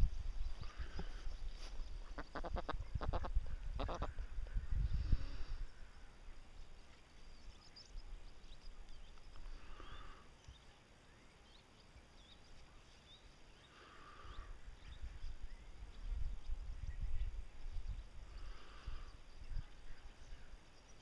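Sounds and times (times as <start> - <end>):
wind rumble on microphone: 0.0 - 9.2, 14.4 - 20.8
small birds chirping: 0.0 - 21.0.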